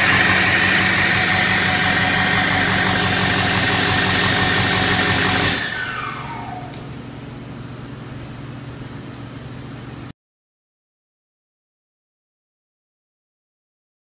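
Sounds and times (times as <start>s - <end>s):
diesel engine running hard: 0.0s - 6.7s
turbocharger whine: 0.0s - 7.0s.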